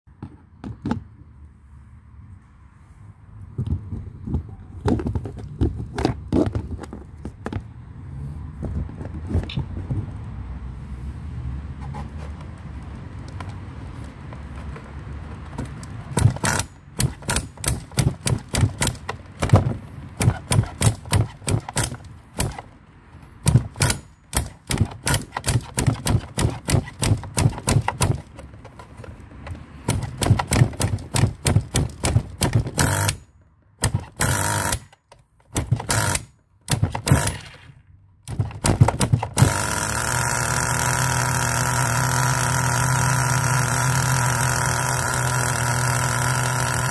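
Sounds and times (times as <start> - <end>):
electric starter wand spinning: 16.2 - 19.0, 39.1 - 46.9
small engine idling: 38.3 - 46.9.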